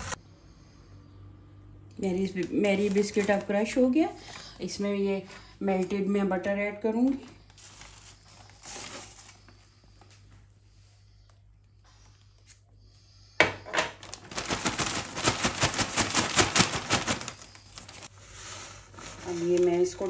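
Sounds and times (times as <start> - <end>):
plastic bag crinkling: 2.4 - 3.9, 7.1 - 9.5, 13.9 - 18.1.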